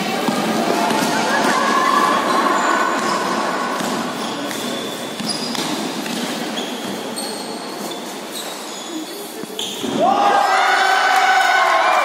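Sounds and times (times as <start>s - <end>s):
echoing room noise: 0.0s - 12.0s
shoes squeaking on hard floor: 0.6s - 10.0s.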